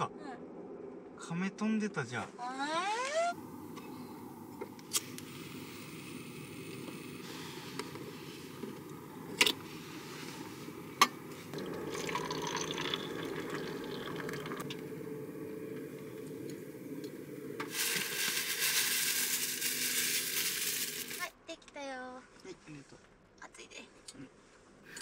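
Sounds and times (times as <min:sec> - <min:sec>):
loud steady hiss: 0:03.4 - 0:21.3
water pouring into metal cup: 0:11.4 - 0:15.0, 0:17.6 - 0:21.2.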